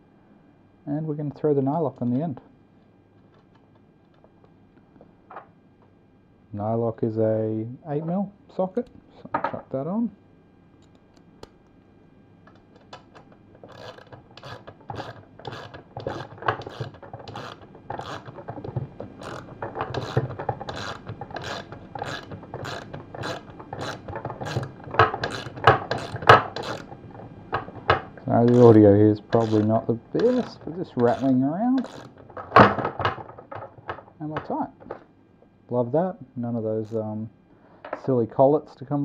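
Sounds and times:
socket ratchet clicking: 13.0 - 26.9, 27.6 - 32.8.

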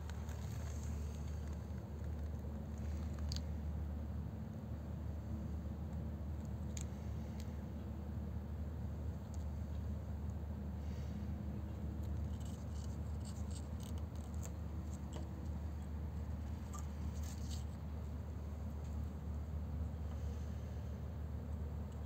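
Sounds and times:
steady low rumble: 0.0 - 22.0
claws scratching on boards: 12.2 - 15.3, 16.7 - 17.8.

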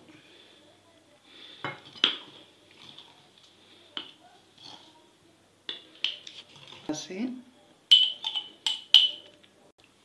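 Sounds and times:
spoon clinking on ceramic dish: 7.9 - 9.4.

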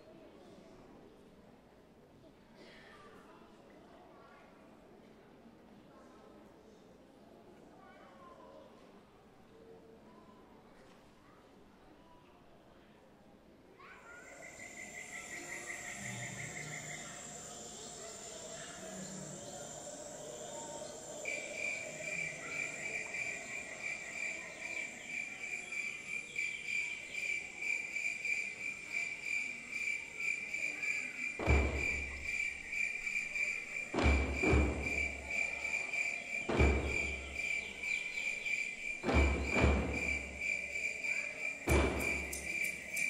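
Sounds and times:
cricket trill: 14.1 - 43.0
deep drum beats: 33.9 - 35.6, 36.4 - 37.8, 38.8 - 40.8, 41.6 - 42.7.

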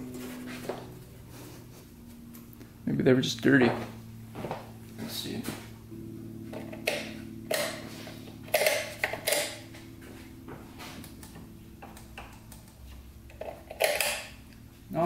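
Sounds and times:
steady low hum: 0.0 - 15.0
switches clicking and tapping: 11.0 - 14.6.

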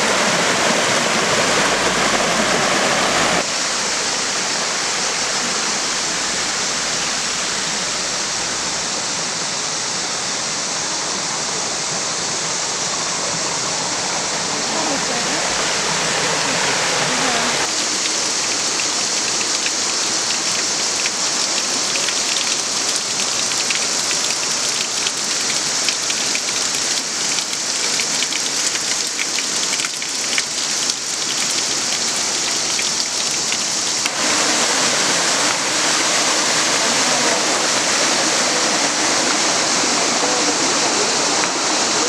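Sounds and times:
stream flowing over rocks: 0.0 - 42.0.

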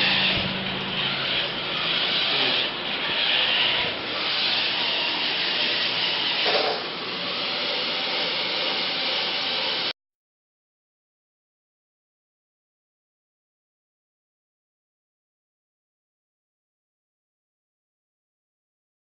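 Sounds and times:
robot motors whirring: 0.0 - 9.9.

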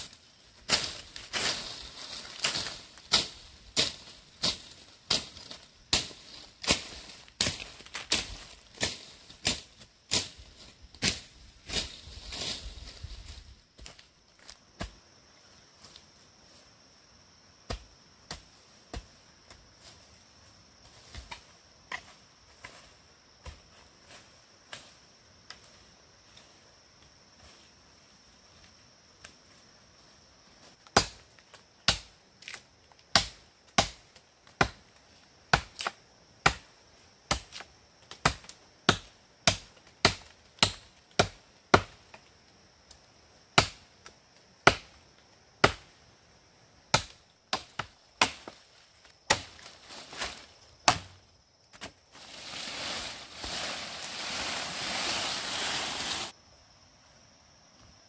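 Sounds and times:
leafy rustling: 0.0 - 13.7, 48.6 - 50.9, 51.8 - 56.4
machete chopping bamboo: 2.4 - 10.4, 30.9 - 31.2, 31.8 - 34.8, 35.5 - 36.7, 37.3 - 42.1, 43.5 - 43.8, 44.6 - 45.0, 45.6 - 45.9, 46.9 - 48.6, 49.3 - 51.9.

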